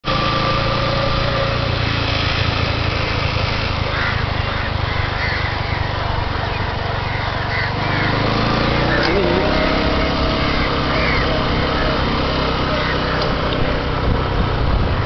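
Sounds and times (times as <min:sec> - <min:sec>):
small vehicle engine running: 0:00.0 - 0:15.0
wind and road noise: 0:00.0 - 0:15.0.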